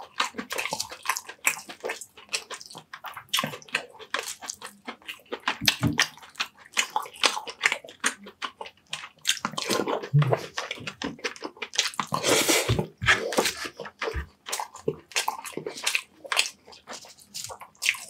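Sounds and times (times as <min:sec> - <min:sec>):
wet chewing and lip-smacking: 0:00.0 - 0:18.0.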